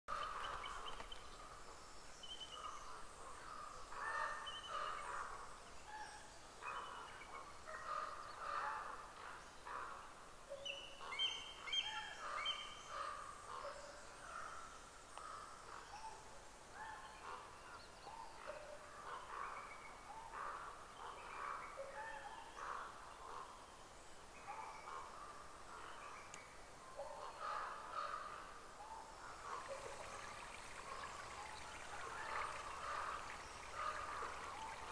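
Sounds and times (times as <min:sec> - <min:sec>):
faint outdoor hiss: 0:00.1 - 0:34.9
birds calling and chirping: 0:10.6 - 0:34.9.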